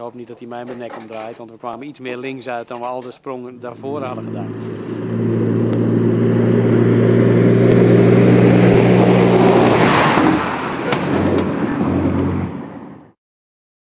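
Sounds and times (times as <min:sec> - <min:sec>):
truck diesel engine passing: 0:03.7 - 0:13.2.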